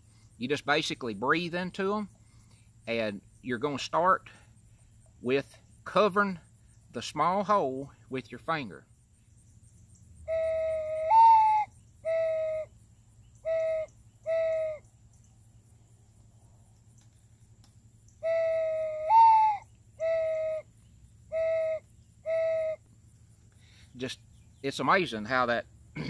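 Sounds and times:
dove call whistle cooing: 10.3 - 12.7, 13.4 - 14.8, 18.2 - 20.7, 21.3 - 22.8.

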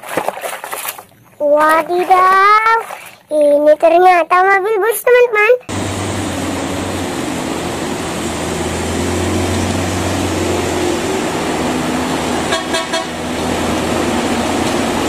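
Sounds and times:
bus engine running: 5.7 - 15.0
road noise: 5.7 - 15.0
horn toots: 9.6 - 13.8.

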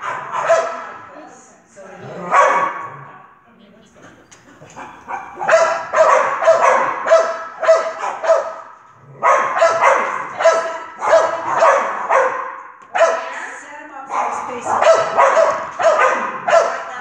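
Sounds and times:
small dog barking: 0.0 - 1.0, 2.3 - 3.0, 4.8 - 13.5, 14.1 - 17.0.

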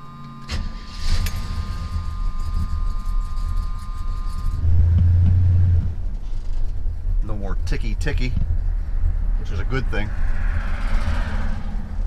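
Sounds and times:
high two-note warning tone: 0.0 - 5.9
car engine starting and running: 0.0 - 12.0.

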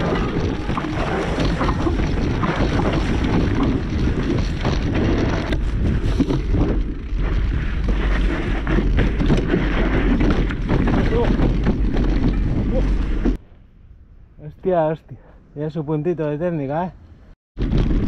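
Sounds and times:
bike rattling over rocky trail: 0.0 - 13.4
wind buffeting microphone: 0.0 - 13.4.

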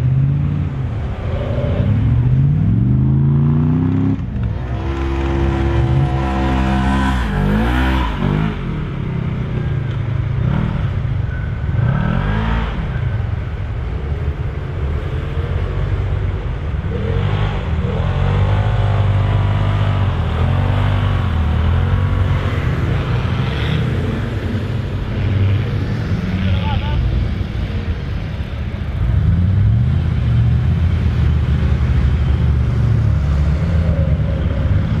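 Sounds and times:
engine revving: 0.0 - 9.6, 11.7 - 13.2, 16.8 - 27.0.

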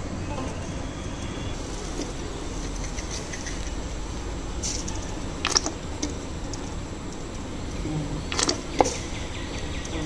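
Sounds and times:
gas stove burner rumble: 0.0 - 10.0.

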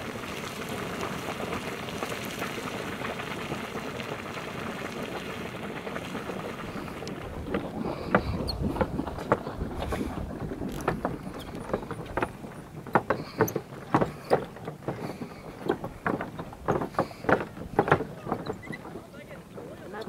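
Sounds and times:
boiling water splashing: 0.0 - 20.0
wind rumble on microphone: 5.8 - 13.4.

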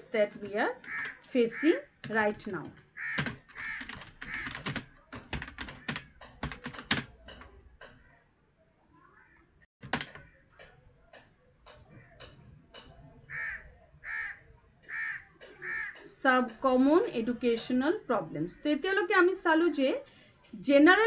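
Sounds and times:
computer keyboard typing: 0.4 - 8.0, 9.8 - 13.0
loud calls: 0.7 - 2.1, 2.8 - 5.0, 11.8 - 16.1.

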